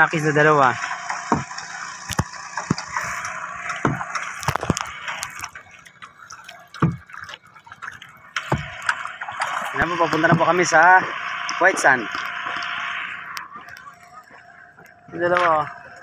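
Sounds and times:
paddle splashing water: 0:00.6 - 0:16.0.

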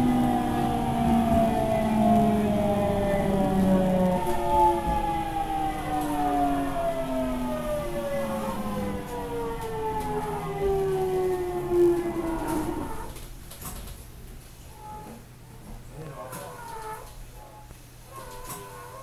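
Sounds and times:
electric train motors whining: 0:00.0 - 0:13.2.

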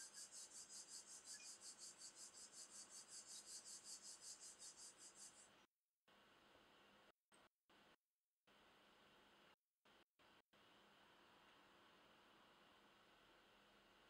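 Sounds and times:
cricket chirping: 0:00.0 - 0:05.5
low room hiss: 0:10.2 - 0:14.0.

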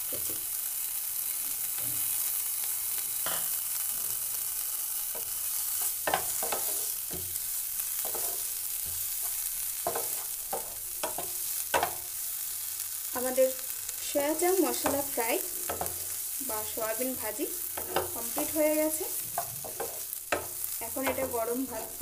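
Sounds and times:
food sizzling in oil: 0:00.0 - 0:22.0
wooden spatula scraping pan: 0:05.8 - 0:07.2, 0:08.0 - 0:12.0, 0:17.7 - 0:22.0.

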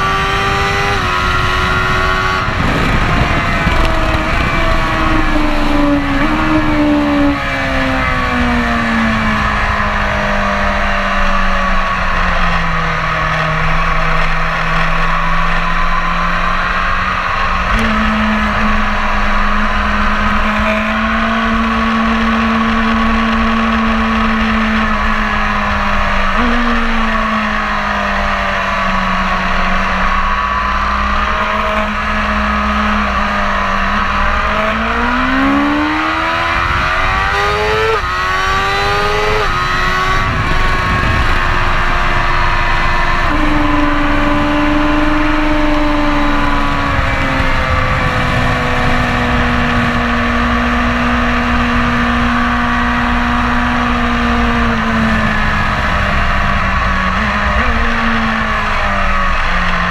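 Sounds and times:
motorcycle engine revving: 0:00.0 - 0:59.9
wind rushing: 0:00.8 - 0:10.1.

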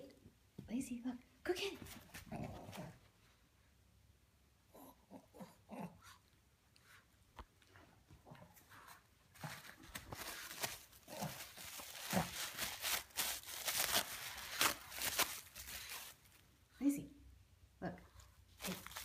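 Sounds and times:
tissue paper crinkling and tearing: 0:09.4 - 0:16.4, 0:18.5 - 0:19.0.

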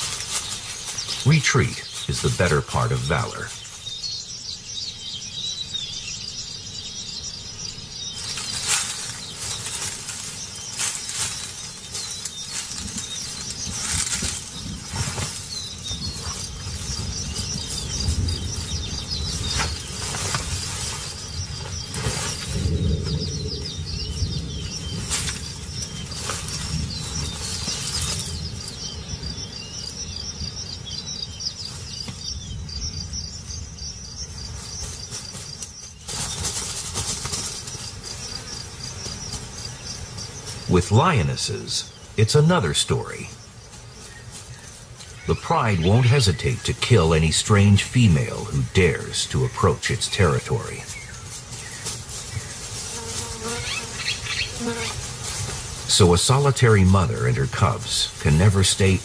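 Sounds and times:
sharp rustles and knocks: 0:00.0 - 0:01.3, 0:08.2 - 0:23.2, 0:24.6 - 0:28.5, 0:34.5 - 0:40.7, 0:50.9 - 0:55.9
bird chirps: 0:00.0 - 0:55.0
high insect drone: 0:00.0 - 0:59.0.

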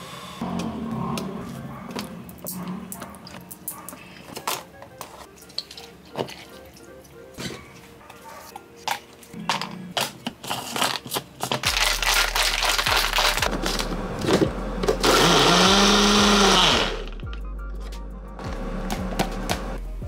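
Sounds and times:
blender motor blending: 0:12.6 - 0:17.1.

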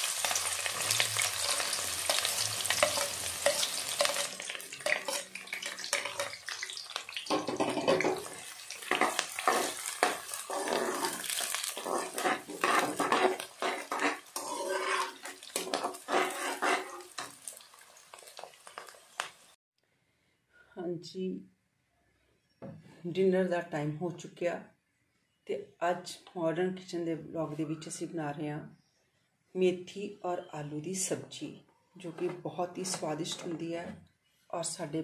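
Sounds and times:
onions sizzling in hot oil: 0:00.0 - 0:19.6
metal spatula scraping a pan: 0:00.1 - 0:19.1.

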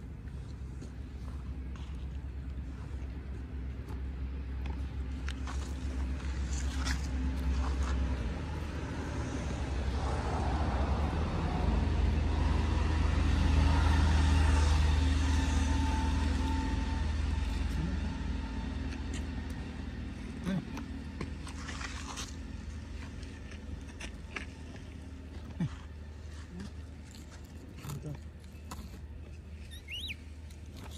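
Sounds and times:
vehicle engine rumbling past: 0:00.0 - 0:23.8.

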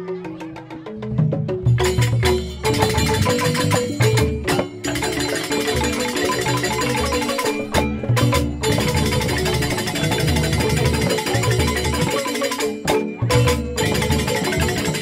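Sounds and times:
bamboo xylophones struck with mallets: 0:00.0 - 0:15.0
drums in fast rhythm: 0:00.0 - 0:15.0.

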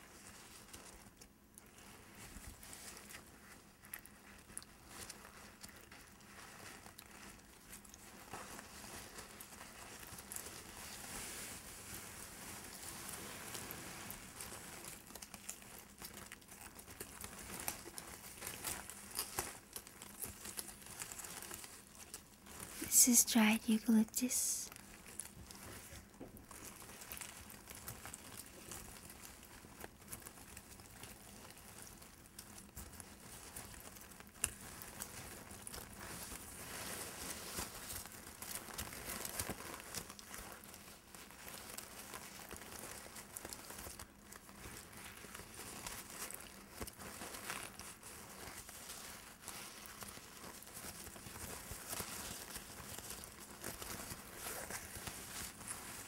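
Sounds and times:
dried flowers rustling: 0:24.7 - 0:56.0.

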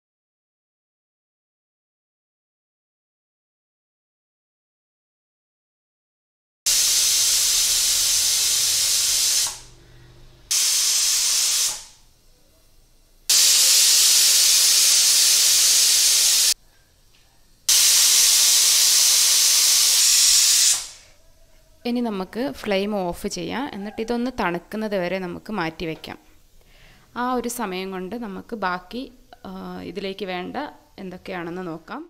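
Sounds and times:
pressure cooker whistling: 0:06.7 - 0:09.8, 0:10.5 - 0:12.1, 0:13.3 - 0:16.6, 0:17.7 - 0:21.1.

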